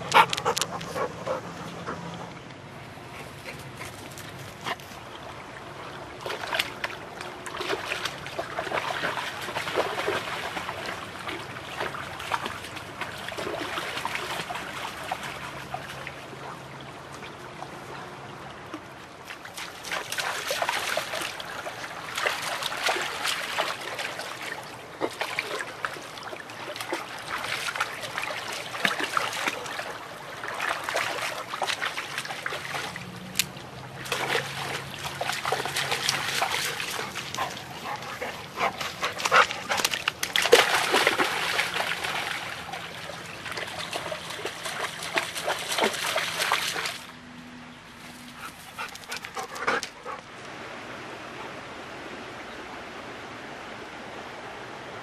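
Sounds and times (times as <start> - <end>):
stream running water: 0.0 - 55.0
dog splashing through water: 6.2 - 16.6, 19.2 - 47.1.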